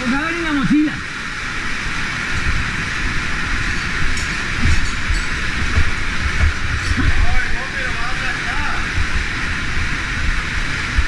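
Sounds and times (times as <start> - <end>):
stream rushing through rocks: 0.0 - 11.0
rumbling bumps on microphone: 4.0 - 7.9.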